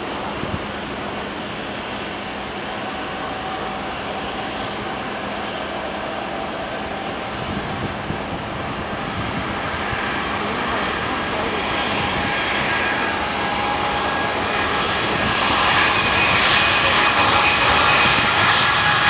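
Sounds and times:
distant jet engines at take-off: 0.0s - 19.0s.

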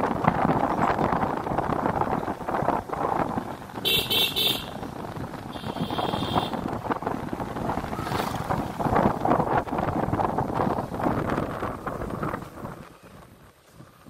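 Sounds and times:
wind rushing across microphone: 0.0s - 14.0s
vehicle horn beeping: 3.8s - 4.8s, 5.5s - 6.6s.

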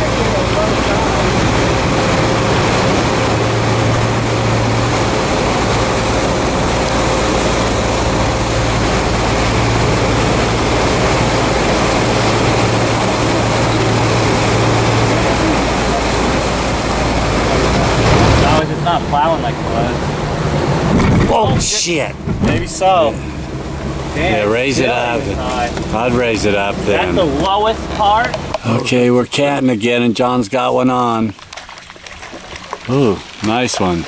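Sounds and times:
rush of wind and water: 0.0s - 30.0s
boat engine hum: 0.0s - 34.0s.

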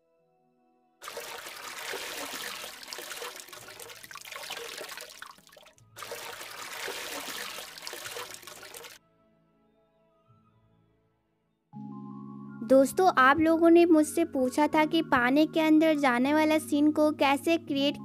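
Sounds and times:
cartoon bubbling water: 1.0s - 9.0s
soft background music: 9.0s - 18.0s.

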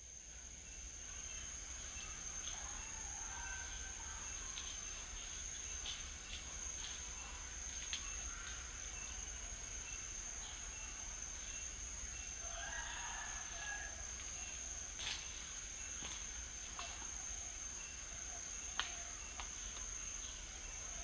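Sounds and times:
insects buzzing: 0.0s - 21.0s
rooster crowing: 2.6s - 4.3s, 12.4s - 14.2s.

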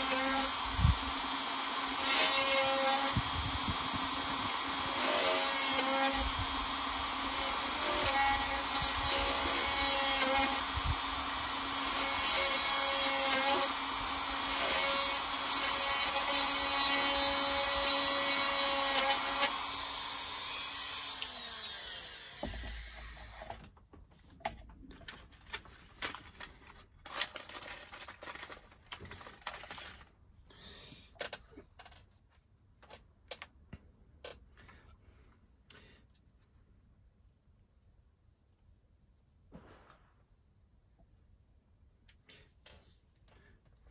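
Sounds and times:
rotary tool whining: 0.0s - 23.6s.

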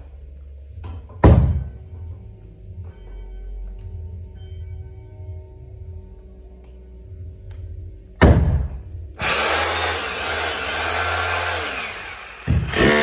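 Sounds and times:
rotary hammer drill motor: 9.2s - 13.0s.

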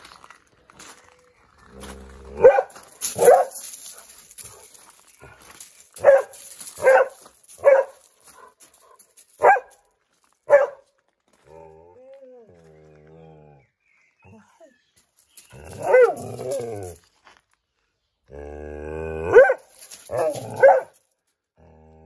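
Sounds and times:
dog barking: 2.4s - 3.6s, 6.0s - 8.5s, 9.4s - 9.8s, 10.5s - 10.8s, 15.8s - 16.4s, 19.3s - 21.0s
dog growling: 18.3s - 19.4s.

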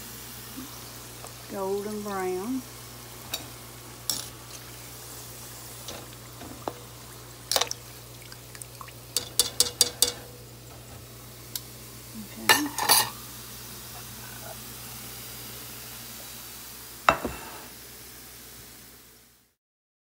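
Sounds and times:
utensil clinking on skillet and plate: 3.3s - 4.7s, 9.1s - 11.0s, 12.5s - 13.2s, 17.1s - 17.7s.

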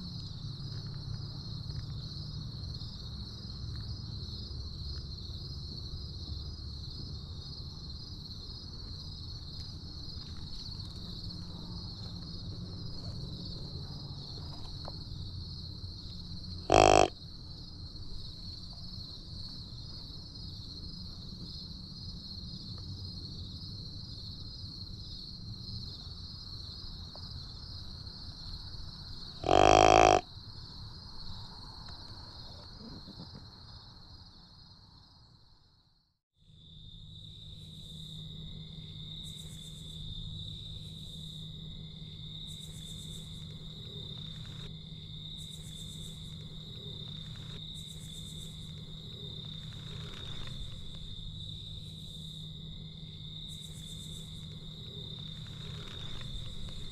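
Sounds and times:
loud short call: 16.7s - 17.1s
high-pitched insect chorus: 36.6s - 56.9s.

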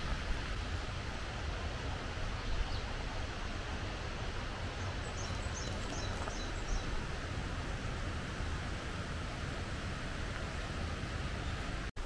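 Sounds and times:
outdoor background low rumble: 0.0s - 12.0s
bird chirping: 4.8s - 6.9s.

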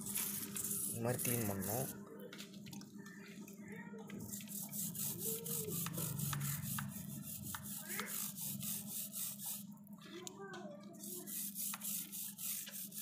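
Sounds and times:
toothbrush scrubbing chain: 0.0s - 2.0s, 4.3s - 9.7s, 11.0s - 13.0s.

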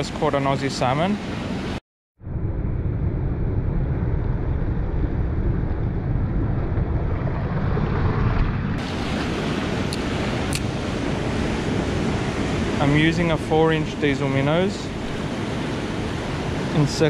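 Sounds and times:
wind buffeting microphone: 1.4s - 17.0s
waves washing against rocks: 7.0s - 17.0s.

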